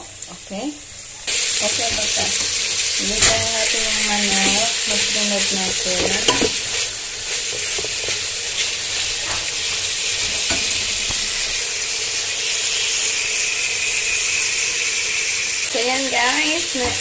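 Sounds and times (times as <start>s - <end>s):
chicken sizzling in hot oil: 0.0s - 17.0s.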